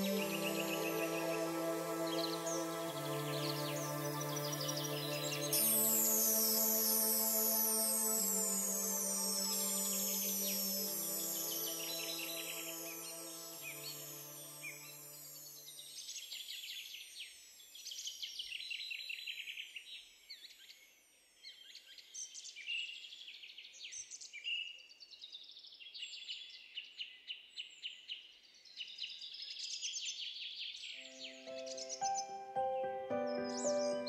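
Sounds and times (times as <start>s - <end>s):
birds chirping and trilling: 0.0s - 15.2s, 30.8s - 34.0s.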